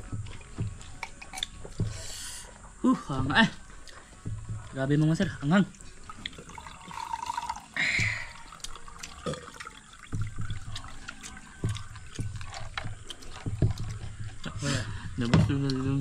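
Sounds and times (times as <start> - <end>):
wet slurping: 6.0 - 14.8.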